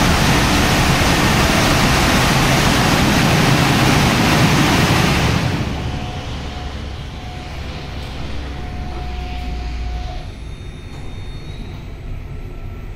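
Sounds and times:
drying blowers air rush: 0:00.0 - 0:10.1
blower hum and faint whine: 0:00.0 - 0:12.9.

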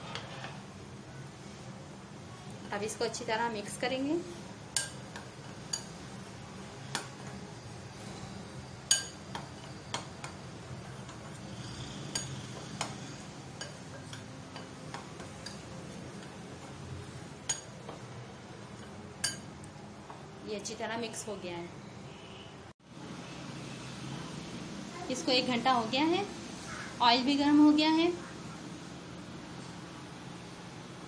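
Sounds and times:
spoon clinking against glass: 0:08.9 - 0:10.0.

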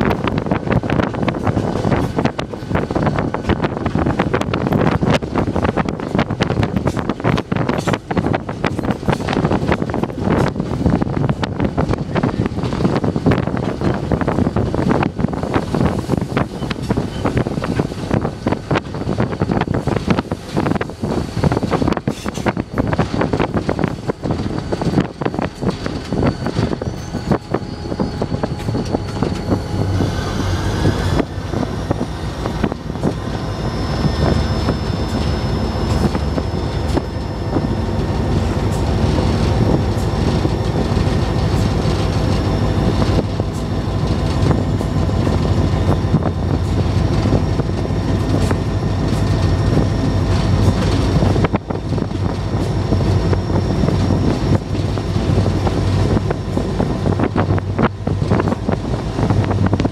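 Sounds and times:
wheels clicking over rails: 0:00.0 - 0:30.1
locomotive engine rumble: 0:00.0 - 0:59.9
thin high whine: 0:20.0 - 0:59.9.

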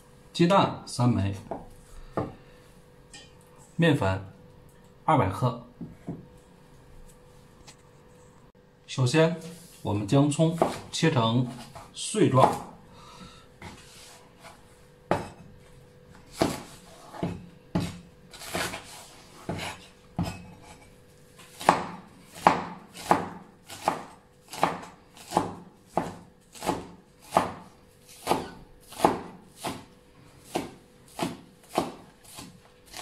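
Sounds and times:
cleaver chopping on wooden board: 0:10.6 - 0:10.9, 0:16.4 - 0:18.9, 0:21.5 - 0:27.6, 0:28.2 - 0:29.9, 0:30.5 - 0:33.0.

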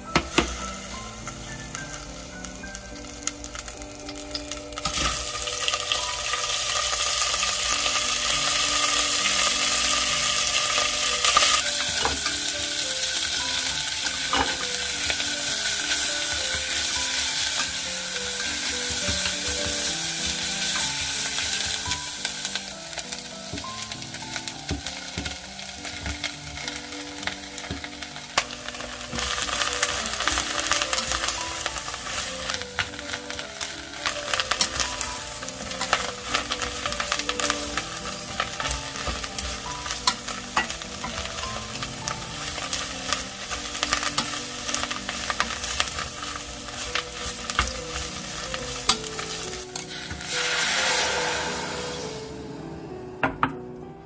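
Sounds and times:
food sizzling in a pot: 0:00.0 - 0:52.7.

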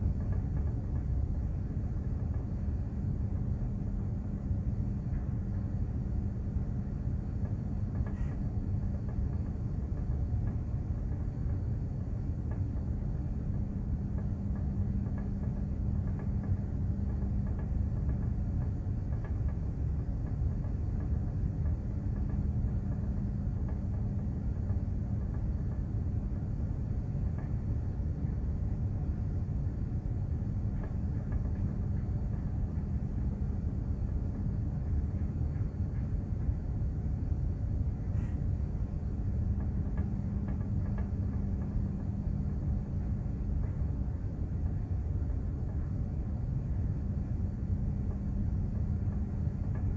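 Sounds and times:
machinery hum: 0:00.0 - 0:49.9
ship low rumble: 0:00.0 - 0:49.9.

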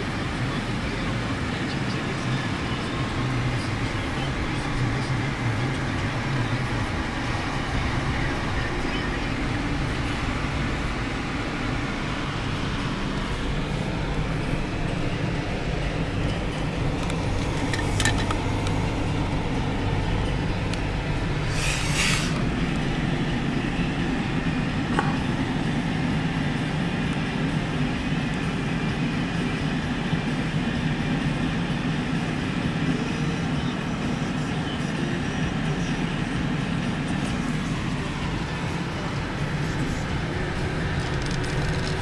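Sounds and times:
car road and engine noise: 0:00.0 - 0:42.0
short hiss: 0:21.5 - 0:22.4
tyre hiss: 0:21.5 - 0:22.4.

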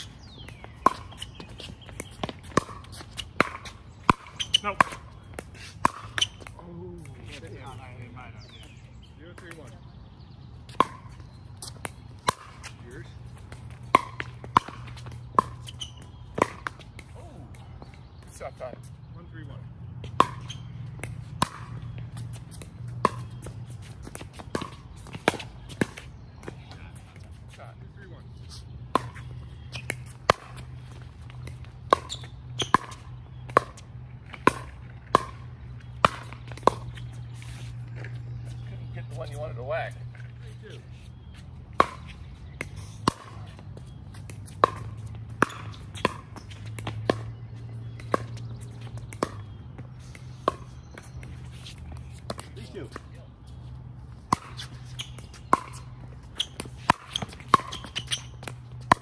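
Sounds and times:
paddles hitting plastic ball: 0:00.3 - 0:07.8, 0:54.3 - 0:59.0.

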